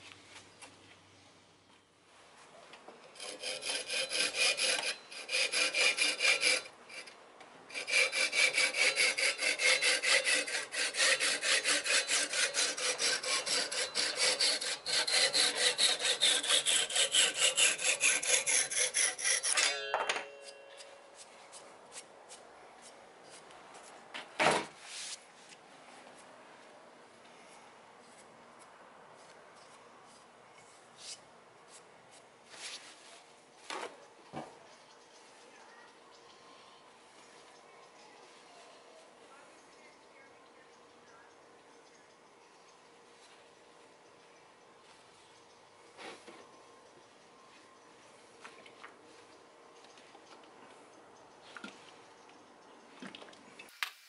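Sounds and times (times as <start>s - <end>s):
handsaw cutting wood: 3.2s - 7.1s, 7.7s - 19.7s.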